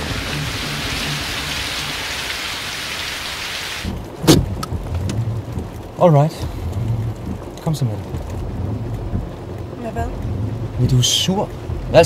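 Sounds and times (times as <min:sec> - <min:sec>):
heavy rain hissing: 0:00.0 - 0:12.0
sharp knock: 0:04.2 - 0:04.7.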